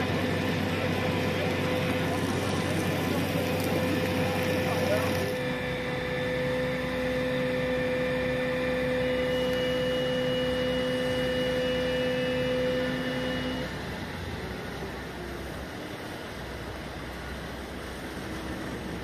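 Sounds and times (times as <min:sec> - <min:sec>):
hose jet spraying: 0:00.0 - 0:05.4
high whine: 0:00.0 - 0:15.1
fire engine pump running: 0:00.0 - 0:19.0.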